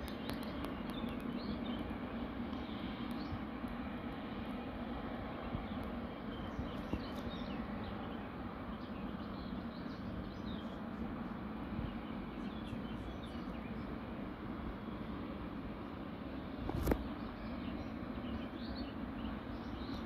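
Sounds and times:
small birds chirping: 0:00.0 - 0:01.9, 0:05.4 - 0:14.2, 0:16.8 - 0:20.0
distant jet engines rumbling: 0:00.0 - 0:20.0.

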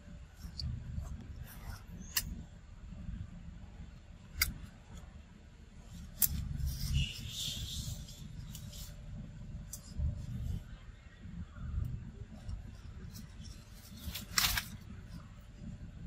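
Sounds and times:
leaves rustling and crackling: 0:13.1 - 0:14.9.

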